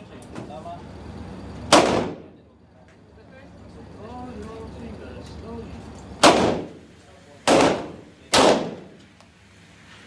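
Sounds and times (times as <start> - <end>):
handgun shots echoing indoors: 1.7 - 2.3, 6.2 - 6.8, 7.4 - 9.0.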